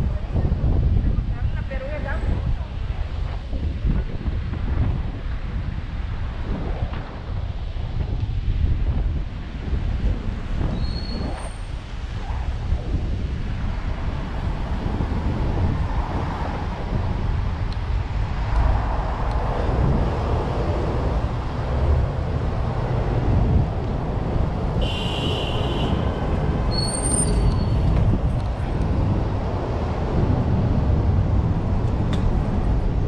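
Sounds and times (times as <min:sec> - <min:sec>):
road traffic rumble: 0:00.0 - 0:33.0
brief high-pitched squeal: 0:26.7 - 0:27.8.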